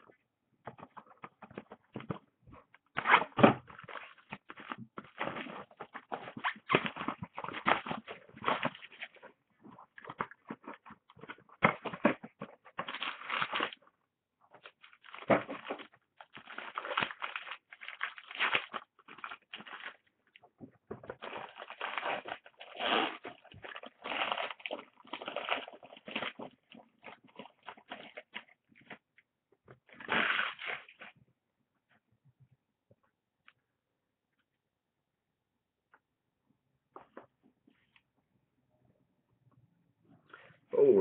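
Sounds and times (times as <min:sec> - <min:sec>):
cards and packaging rustling: 0:00.6 - 0:13.9, 0:14.5 - 0:29.1.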